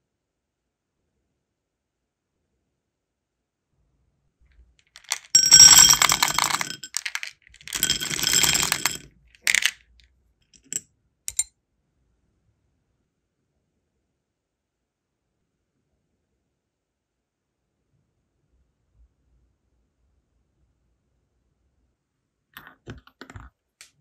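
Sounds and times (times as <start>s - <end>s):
wax beads clattering in glass dish: 5.0s - 9.8s.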